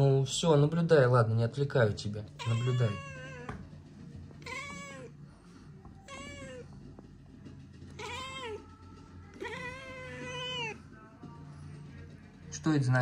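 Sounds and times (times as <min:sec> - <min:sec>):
cat meowing: 0:02.3 - 0:03.7, 0:04.4 - 0:05.2, 0:05.9 - 0:06.8, 0:07.9 - 0:10.8.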